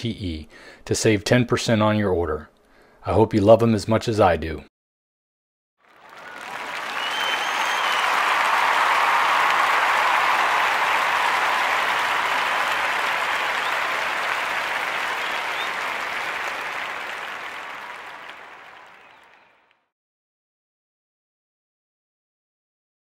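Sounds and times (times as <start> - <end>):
audience applause: 5.8 - 19.8.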